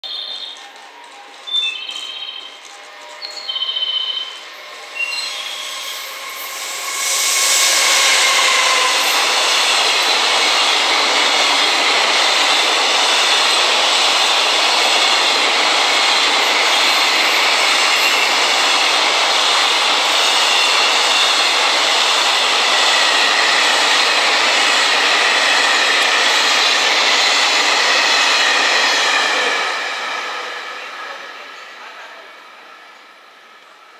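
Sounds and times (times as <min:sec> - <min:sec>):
steel wheels rushing on rail: 0:00.1 - 0:33.9.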